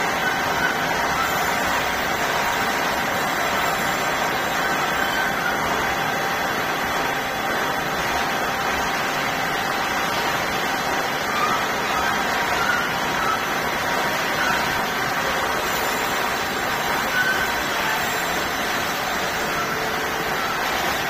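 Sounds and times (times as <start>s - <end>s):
steady machinery noise: 0.0s - 21.0s.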